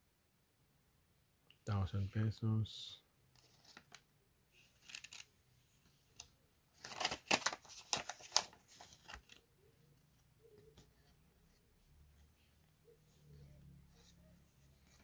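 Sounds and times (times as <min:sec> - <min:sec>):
paper banknote rustling: 0:04.6 - 0:05.3, 0:06.8 - 0:09.5.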